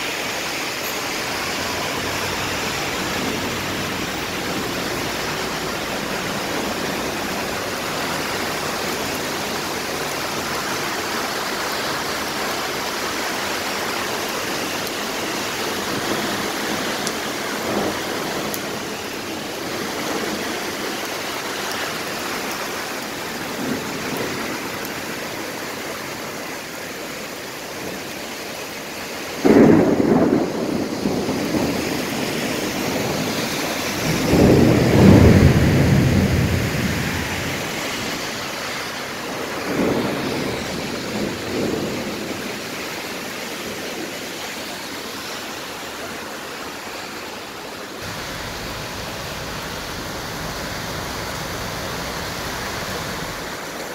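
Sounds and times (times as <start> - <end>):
heavy rain: 0.0 - 53.9
thunder crack and rumble: 29.4 - 38.1, 39.2 - 42.8.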